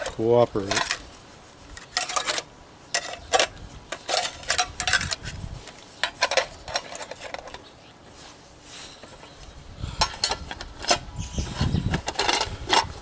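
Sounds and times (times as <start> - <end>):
metal pots and lid clattering: 1.9 - 2.4, 3.0 - 5.2, 6.0 - 7.6, 10.0 - 11.0, 12.0 - 13.0.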